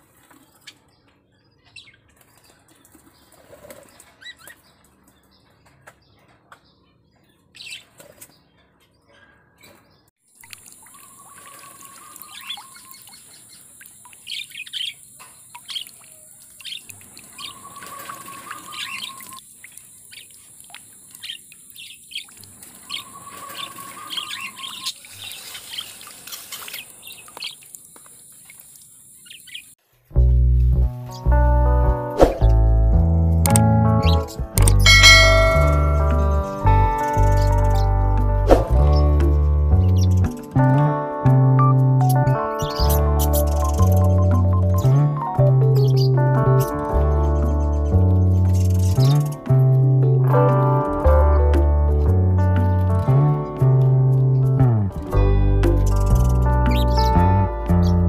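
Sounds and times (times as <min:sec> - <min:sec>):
birds chirping: 0:00.0 - 0:29.8, 0:33.5 - 0:41.0, 0:42.0 - 0:49.6, 0:55.6 - 0:58.0
bird splashing in water: 0:10.4 - 0:28.9
wings fluttering: 0:16.6 - 0:19.4, 0:22.2 - 0:27.7.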